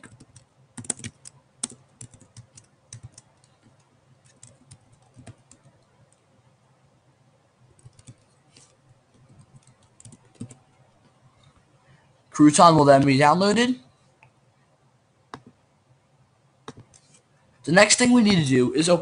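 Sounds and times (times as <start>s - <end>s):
laptop keyboard typing: 0.0s - 6.3s, 7.7s - 10.6s, 15.3s - 15.6s, 16.6s - 17.2s.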